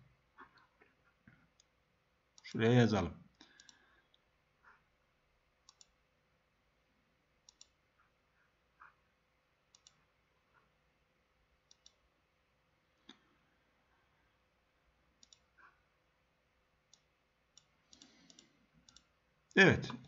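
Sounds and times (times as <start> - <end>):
computer mouse clicks: 3.3 - 4.2, 5.6 - 6.0, 7.4 - 7.8, 9.7 - 10.7, 11.6 - 12.0, 15.2 - 15.8, 16.9 - 19.6.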